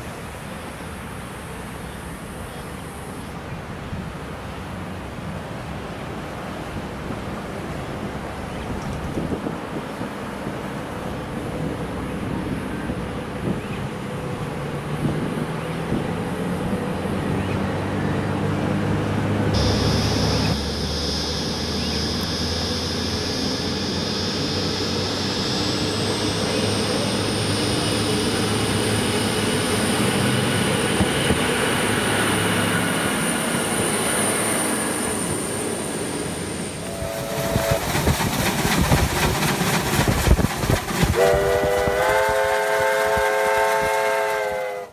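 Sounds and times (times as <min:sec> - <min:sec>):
diesel railcar engine and wheels: 0:00.0 - 0:44.9
high-pitched whine: 0:19.5 - 0:38.9
steam locomotive chime whistle: 0:19.6 - 0:30.6, 0:34.5 - 0:38.1, 0:41.2 - 0:44.9
rail clicks: 0:36.7 - 0:42.3.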